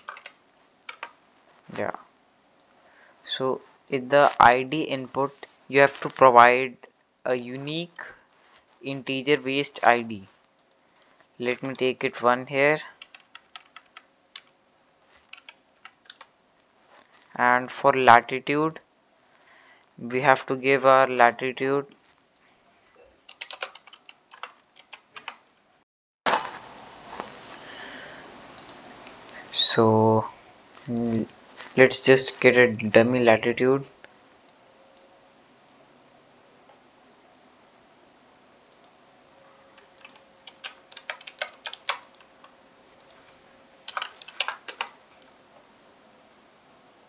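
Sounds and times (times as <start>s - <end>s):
typing on a keyboard: 0.0s - 1.2s, 13.0s - 14.5s, 15.2s - 16.3s, 23.2s - 25.4s, 39.8s - 42.5s, 43.9s - 45.0s
background hiss: 0.0s - 47.0s.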